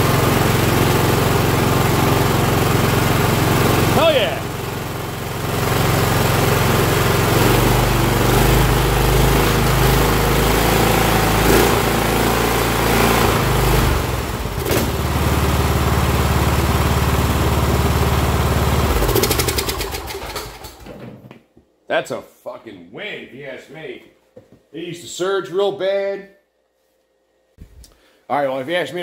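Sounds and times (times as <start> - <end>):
riding mower engine running: 0.0 - 21.0.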